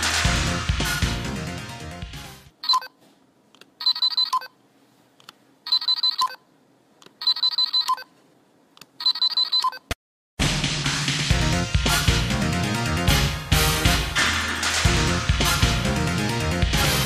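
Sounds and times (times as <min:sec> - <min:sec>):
toy electronic beeping: 0:02.6 - 0:02.9, 0:03.8 - 0:04.5, 0:05.7 - 0:06.4, 0:07.2 - 0:08.1, 0:09.0 - 0:09.9.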